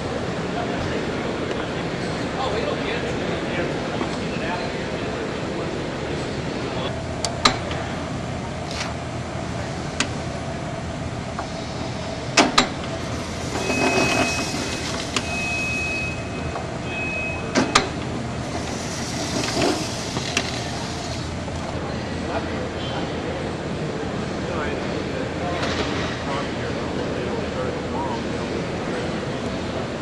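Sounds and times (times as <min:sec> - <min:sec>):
machine mechanical hum: 0:00.0 - 0:30.0
sharp mechanical clacks: 0:17.5 - 0:21.8
apple spinning against blade: 0:18.4 - 0:21.8.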